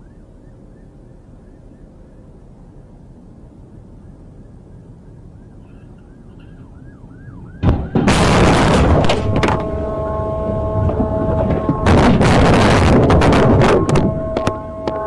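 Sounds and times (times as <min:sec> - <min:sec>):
siren yelping: 0:04.0 - 0:15.0
car crash impact: 0:07.6 - 0:09.8
crunching scraping debris: 0:07.7 - 0:15.0
steady tone: 0:08.3 - 0:15.0.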